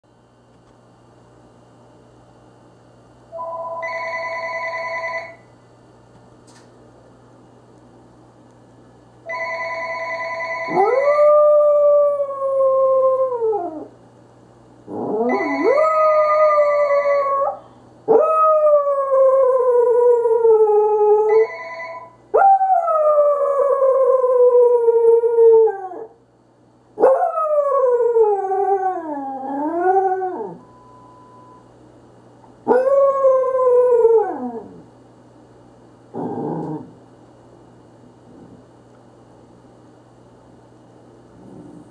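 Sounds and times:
telephone ringing: 3.4 - 5.5, 9.3 - 10.8, 15.3 - 15.8, 21.4 - 22.1
dog howling: 10.7 - 13.9.

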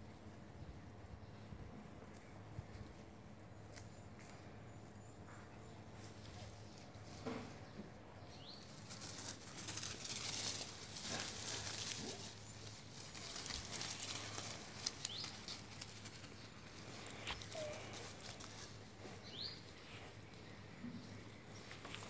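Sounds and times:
steady low hum: 0.0 - 22.0
dogs rustling dry leaves: 8.4 - 20.2.

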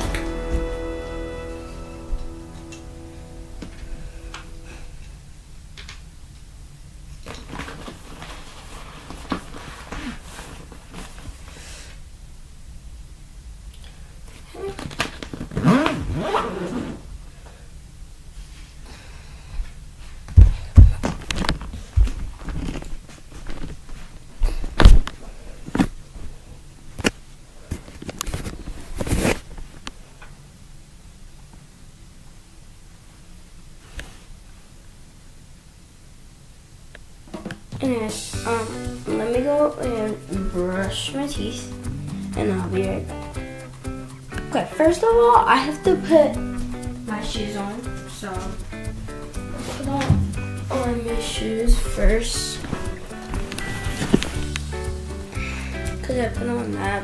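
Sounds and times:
steady low hum: 0.0 - 7.2, 34.7 - 57.0
person moving about: 7.1 - 11.7, 19.6 - 30.2, 46.4 - 55.4.

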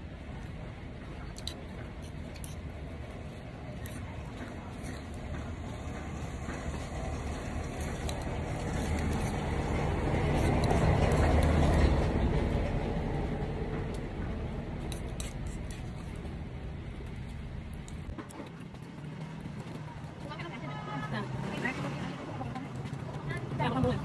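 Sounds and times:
spoon scraping egg shell: 14.9 - 16.2.

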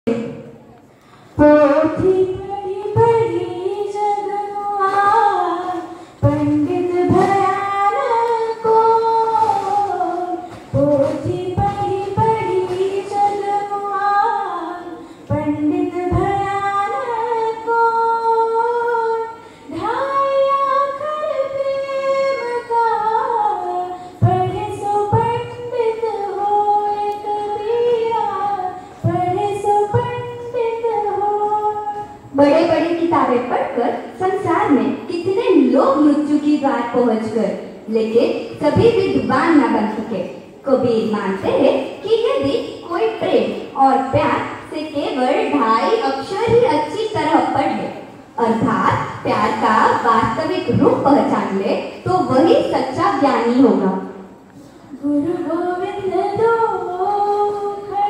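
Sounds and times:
singer breathing: 0.8 - 1.4, 5.9 - 6.2, 15.0 - 15.3, 19.4 - 19.7
girl singing: 1.4 - 40.2, 54.7 - 58.0.

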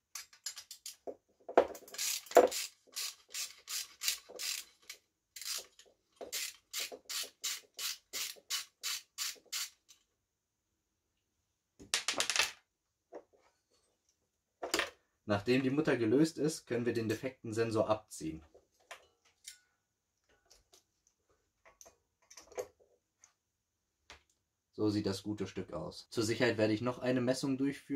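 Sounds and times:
ratchet clicking: 1.8 - 10.0.

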